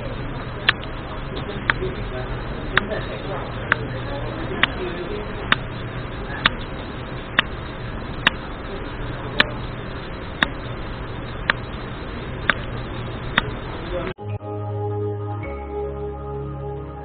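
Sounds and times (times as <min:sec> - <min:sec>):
sharp ticking: 0:00.0 - 0:14.1
soft music: 0:14.2 - 0:17.0.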